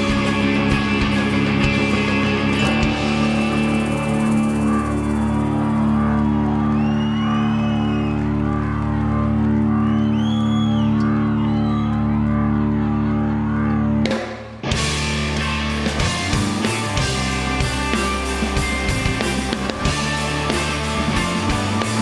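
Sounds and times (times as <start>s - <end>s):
high sliding guitar notes: 0.0s - 6.6s
rock band playing live: 0.0s - 9.8s, 12.1s - 22.0s
drums: 0.0s - 22.0s.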